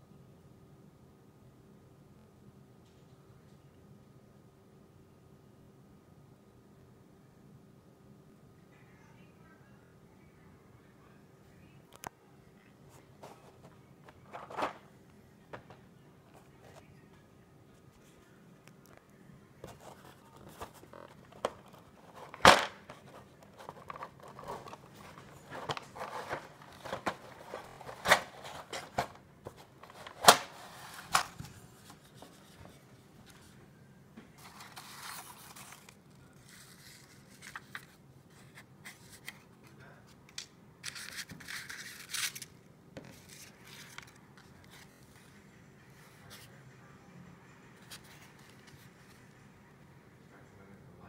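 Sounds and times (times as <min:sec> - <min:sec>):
paper sheets rustling: 0:13.2 - 0:14.8, 0:19.7 - 0:33.5, 0:34.4 - 0:39.4, 0:40.8 - 0:45.1.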